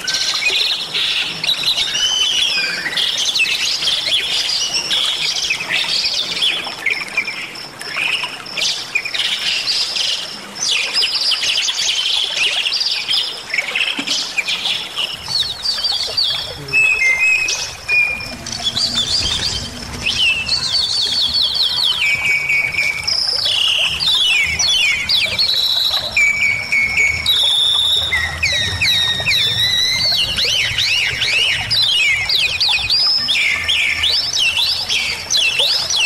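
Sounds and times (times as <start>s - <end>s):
myna singing varied whistled song: 0.0s - 4.9s, 15.0s - 36.0s.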